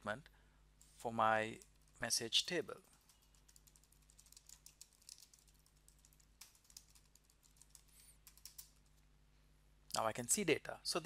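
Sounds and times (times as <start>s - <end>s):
typing on keyboard: 2.8s - 9.0s.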